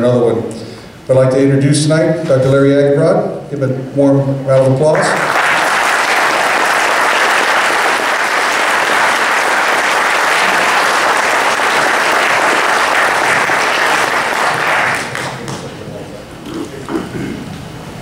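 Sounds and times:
audience applauding: 5.0s - 15.7s.

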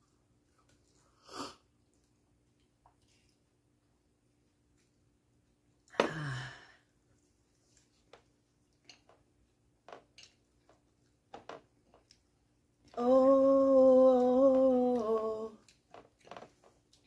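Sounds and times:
woman singing a long note: 12.9s - 15.6s.

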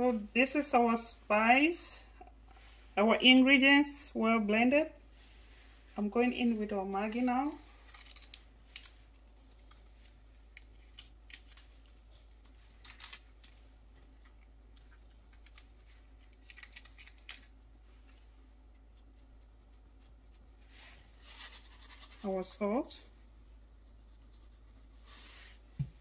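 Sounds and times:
low steady hum: 0.0s - 26.0s
seasoning crumbling between fingers: 7.7s - 20.6s.

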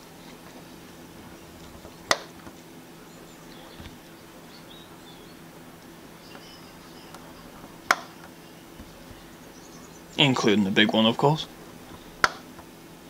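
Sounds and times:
centre punch click: 12.2s - 12.7s.

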